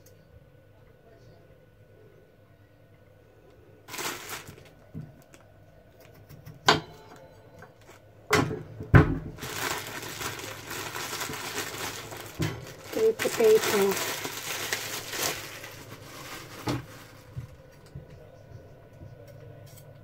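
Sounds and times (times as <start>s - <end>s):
plastic bag crinkling: 3.9s - 5.4s, 9.3s - 17.8s.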